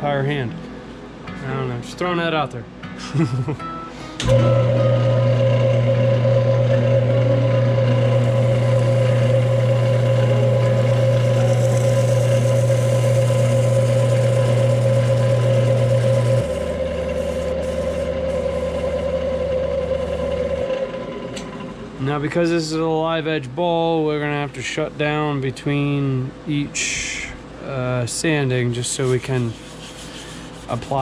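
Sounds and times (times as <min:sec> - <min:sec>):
wood lathe motor hum and whine: 0:04.2 - 0:21.9, 0:29.1 - 0:31.0
pad sanding spinning bowl: 0:05.2 - 0:20.9, 0:28.7 - 0:31.0.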